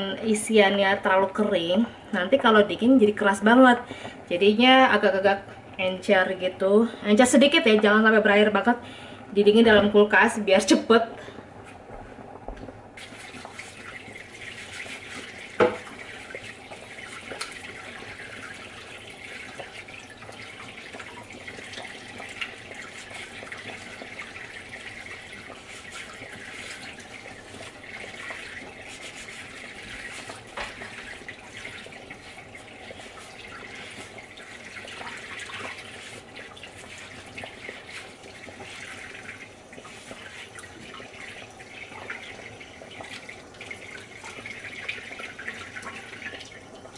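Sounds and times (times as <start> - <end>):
utensils being washed: 13.0 - 46.9
tap running into sink: 14.9 - 17.8, 29.8 - 32.0.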